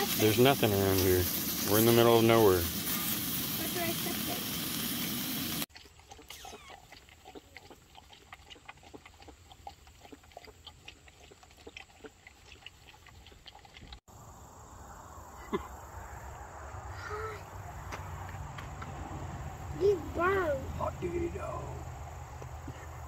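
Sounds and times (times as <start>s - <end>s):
dog lapping in a plastic cup: 5.7s - 14.0s.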